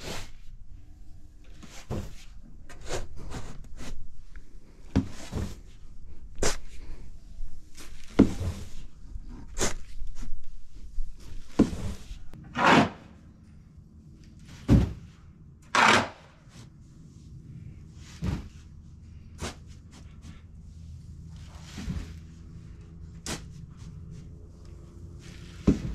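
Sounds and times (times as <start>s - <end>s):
shovel scraping grain: 11.8s - 13.1s
faint steady hum: 13.1s - 25.9s
heavy thud: 14.6s - 15.1s.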